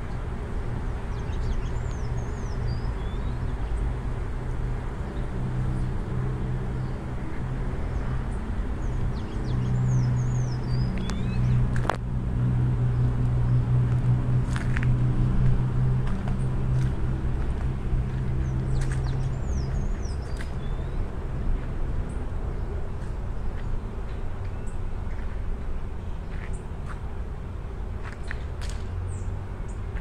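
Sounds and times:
small birds chirping: 0.0 - 4.0, 6.7 - 11.9, 18.1 - 21.2
low drone: 0.0 - 26.2.

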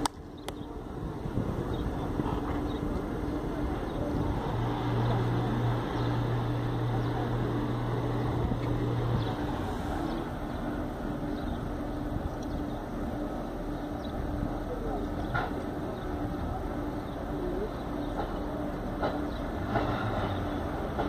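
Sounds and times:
outdoor background noise: 0.0 - 21.0
vehicle engine humming: 0.0 - 21.0.

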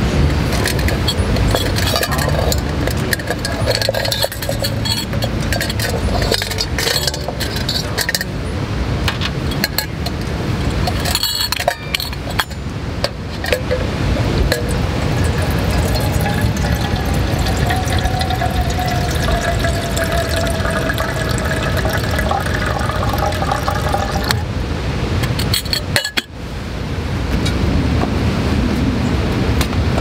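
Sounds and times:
metal pot clinking: 0.4 - 8.5, 9.5 - 12.7, 13.4 - 24.4, 25.4 - 26.3.

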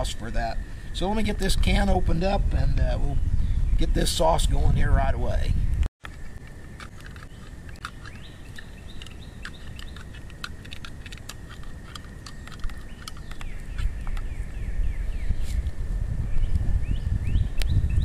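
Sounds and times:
birds chirping: 0.0 - 18.0
wind rumbling: 0.0 - 18.0.

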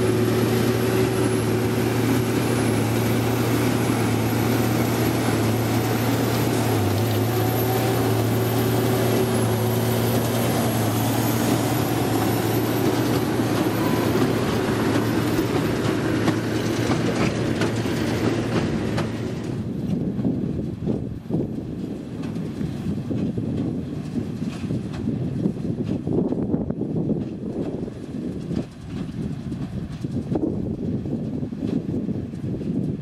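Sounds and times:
baler machinery rattling and clicking: 0.0 - 26.4
tractor engine running: 0.0 - 33.0.

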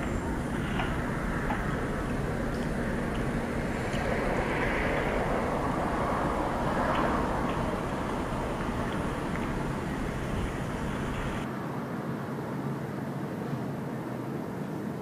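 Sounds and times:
outdoor rushing noise: 0.0 - 11.8.

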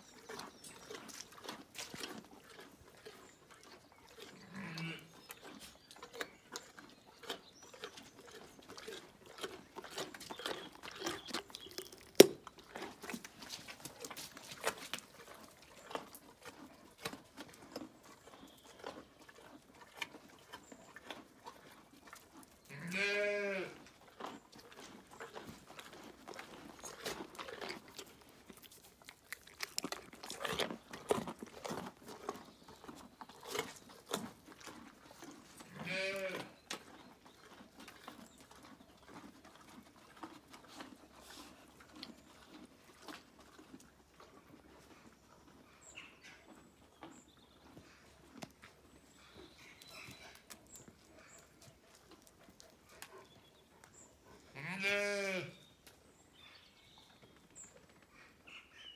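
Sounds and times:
pony chewing carrots: 0.0 - 58.9
short bleat: 22.7 - 23.8, 35.7 - 36.5, 54.6 - 55.6.

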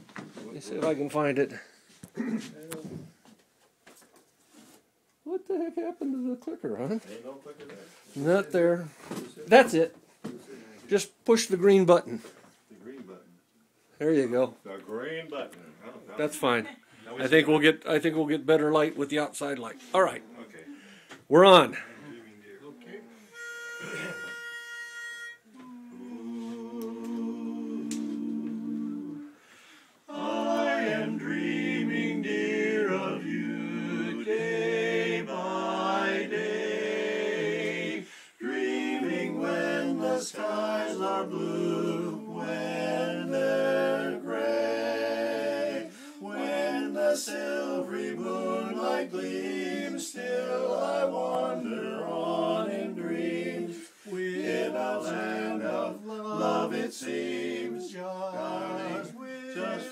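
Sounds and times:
men singing a cappella harmony: 25.5 - 59.9.

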